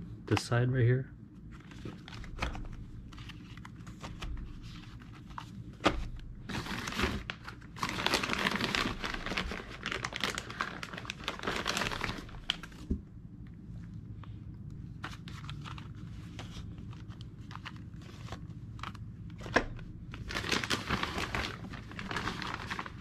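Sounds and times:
plastic bag crinkling: 0:06.4 - 0:12.9, 0:20.1 - 0:23.0.

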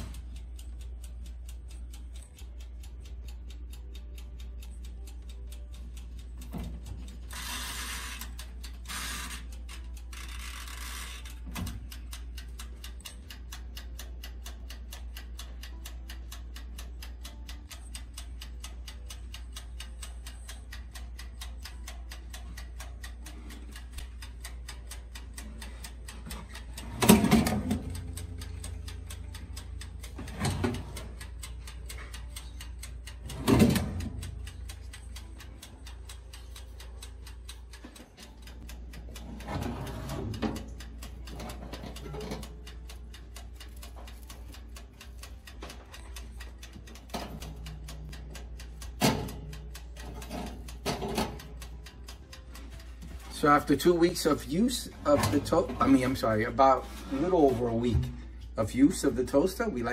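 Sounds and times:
wind-up timer ticking: 0:00.0 - 0:59.9.

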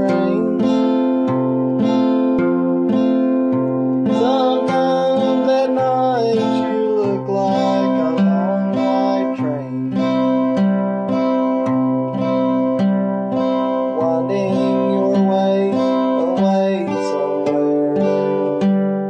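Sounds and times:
man singing: 0:00.0 - 0:03.0, 0:04.0 - 0:10.6, 0:13.8 - 0:19.0
fingerpicked acoustic guitar: 0:00.0 - 0:19.0.

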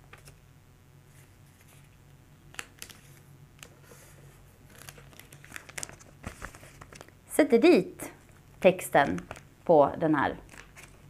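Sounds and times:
paper and plastic crinkling: 0:01.1 - 0:07.2, 0:08.9 - 0:09.5, 0:10.4 - 0:11.0.

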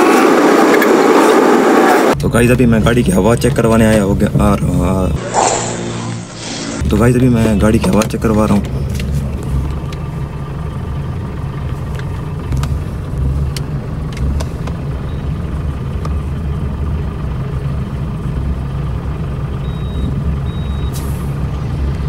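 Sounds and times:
low machine rumble: 0:02.2 - 0:22.0
air hissing: 0:05.2 - 0:06.8.

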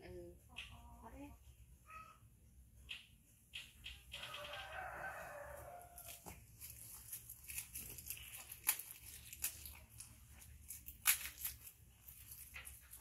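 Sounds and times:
rooster crowing: 0:04.2 - 0:06.3
packaging crinkling and tearing: 0:05.9 - 0:13.0.

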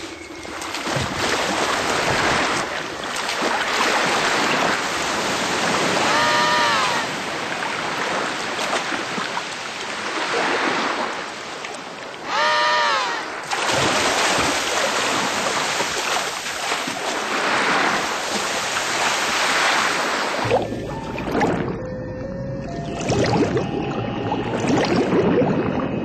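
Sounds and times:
penguin call: 0:06.0 - 0:07.2, 0:12.2 - 0:13.4.

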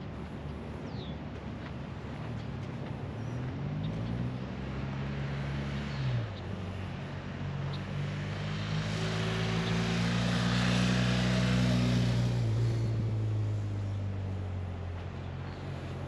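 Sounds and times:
passing engine drone: 0:03.5 - 0:16.0.

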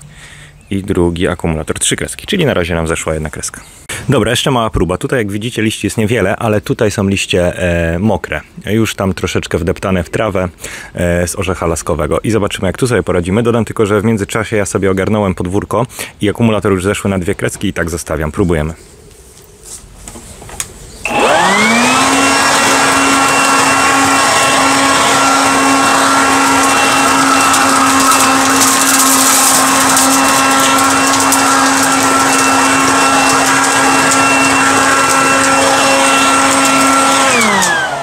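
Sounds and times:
leaf blower motor whine: 0:21.0 - 0:38.0.

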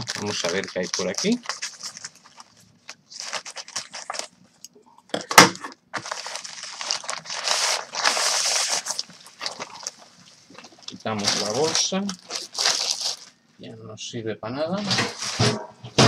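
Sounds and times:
scissors cutting plastic bag: 0:00.0 - 0:02.4
plastic film crinkling: 0:00.0 - 0:04.7, 0:05.9 - 0:13.4.

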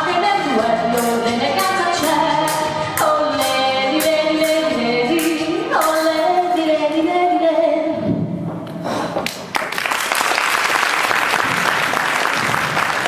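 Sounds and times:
audience applause: 0:09.2 - 0:13.0.

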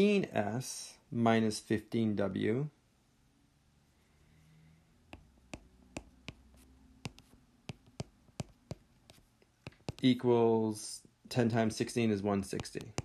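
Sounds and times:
pen tapping on writing surface: 0:05.1 - 0:10.0, 0:12.6 - 0:13.0.

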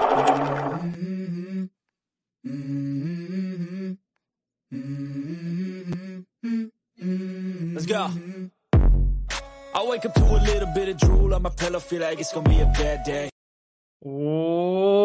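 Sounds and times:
low humming voice singing: 0:00.8 - 0:01.7, 0:02.4 - 0:04.0, 0:04.7 - 0:08.6.

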